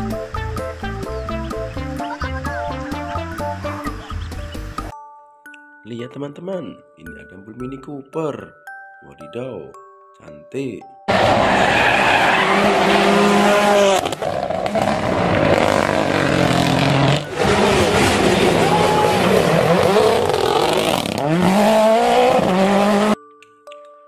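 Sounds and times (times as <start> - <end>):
rally car engines revving hard: 11.1 - 23.2.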